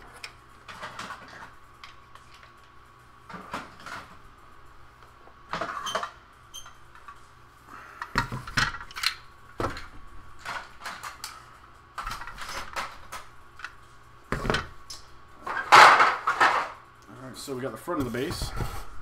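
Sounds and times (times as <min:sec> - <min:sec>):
plastic toy pieces clattering: 0:12.0 - 0:13.3, 0:15.5 - 0:16.8.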